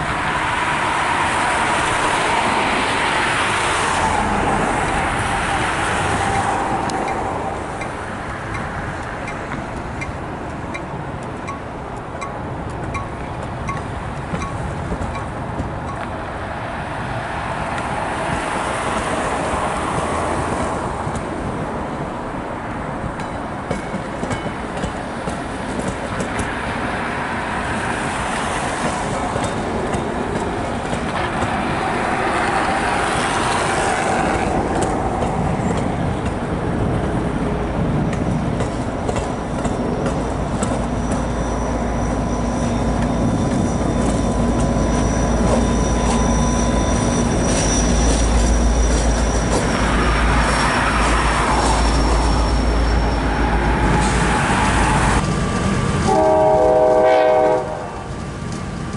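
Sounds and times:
high wheel squeal: 0.0s - 10.1s, 27.6s - 36.5s, 38.8s - 57.6s
diesel locomotive engine rumble: 0.0s - 58.9s
train wheels rolling: 0.0s - 58.9s.

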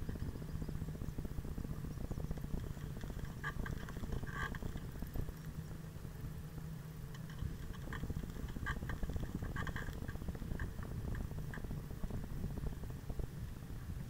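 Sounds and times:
bicycle rolling over asphalt: 0.0s - 14.0s
rattling of bike and mount: 2.5s - 5.2s, 7.1s - 11.6s.

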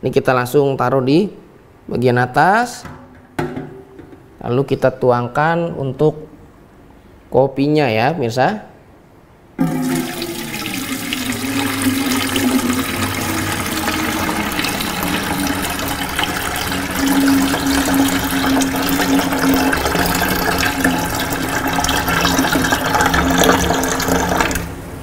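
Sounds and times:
coffee pouring and splashing: 9.6s - 24.7s.

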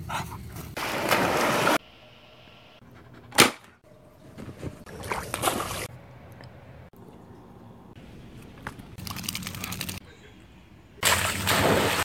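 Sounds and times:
dog splashing in water: 11.0s - 12.0s.

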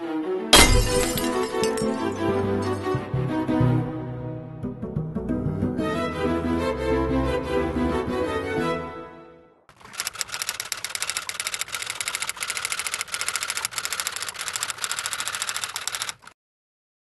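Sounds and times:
rapid mechanical clicking: 9.7s - 16.3s.

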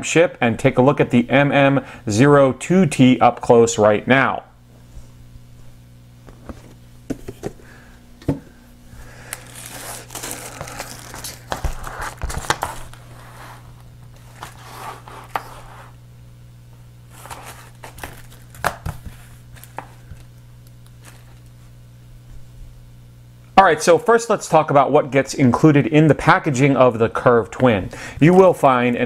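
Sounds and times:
plastic packaging crinkling: 9.1s - 13.2s, 17.1s - 21.6s.

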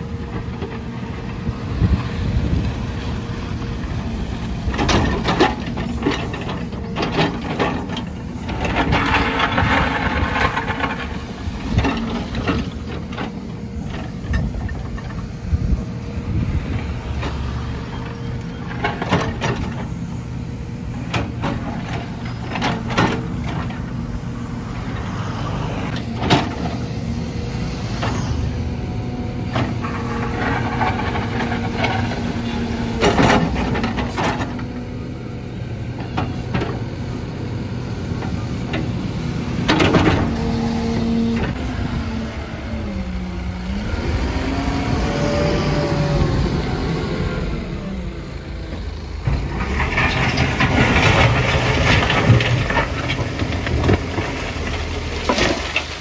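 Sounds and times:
diesel engine running: 0.0s - 56.0s
bucket scraping concrete rubble: 8.7s - 11.4s, 49.3s - 56.0s.

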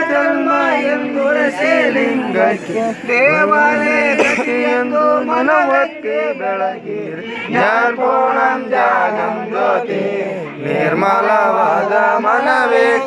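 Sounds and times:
man chanting devotional song: 0.0s - 13.0s.

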